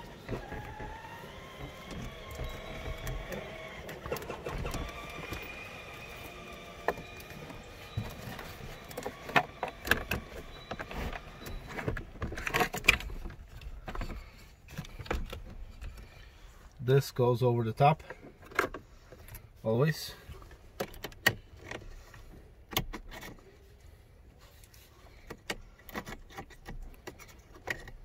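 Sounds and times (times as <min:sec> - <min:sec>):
wavering whine: 0:00.0 - 0:12.3.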